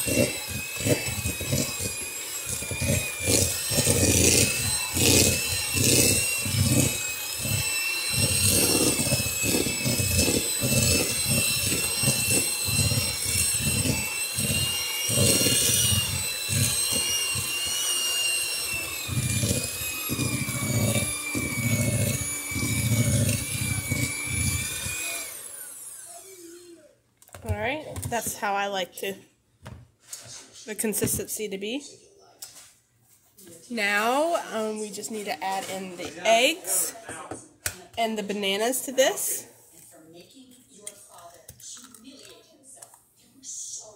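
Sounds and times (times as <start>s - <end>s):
electric hand mixer whining: 0.0s - 26.8s, 33.8s - 37.3s, 38.2s - 39.5s.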